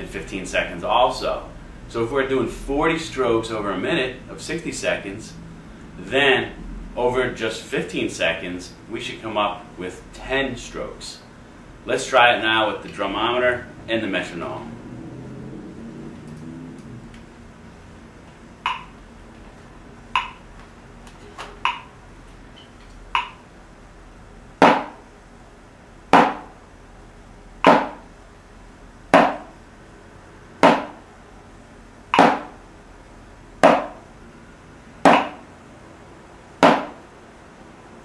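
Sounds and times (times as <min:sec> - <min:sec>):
drumstick striking practice pad: 0:18.6 - 0:19.0, 0:20.1 - 0:20.5, 0:21.6 - 0:21.9, 0:23.1 - 0:23.4, 0:24.6 - 0:25.1, 0:26.1 - 0:26.6, 0:27.6 - 0:28.1, 0:29.1 - 0:29.6, 0:30.6 - 0:31.0, 0:32.1 - 0:32.6, 0:33.6 - 0:34.1, 0:35.0 - 0:35.5, 0:36.6 - 0:37.0
metronome clicking: 0:18.6 - 0:19.0, 0:20.2 - 0:20.4, 0:21.6 - 0:21.9, 0:23.1 - 0:23.4.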